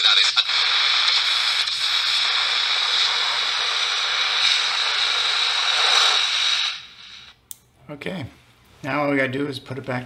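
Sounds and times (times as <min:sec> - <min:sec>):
radio click: 0:00.0 - 0:07.4
radio static hiss: 0:00.0 - 0:07.4.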